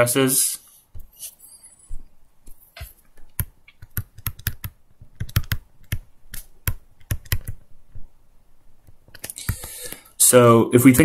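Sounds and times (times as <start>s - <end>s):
stylus tapping on tablet screen: 2.4s - 8.1s, 8.8s - 9.8s.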